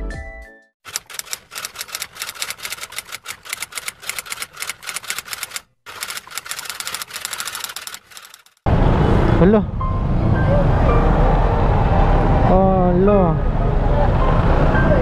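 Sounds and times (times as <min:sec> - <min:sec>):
typewriter keys clacking: 0:00.9 - 0:08.6.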